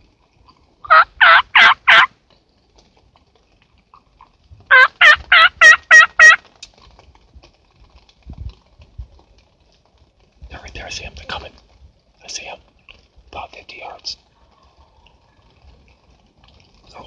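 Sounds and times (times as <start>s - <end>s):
turkey call yelps: 0.8s - 2.1s, 4.7s - 6.5s.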